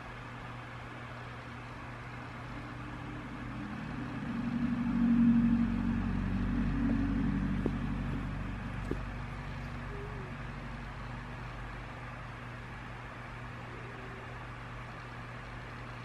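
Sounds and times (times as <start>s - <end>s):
vehicle engine running: 1.7s - 12.8s.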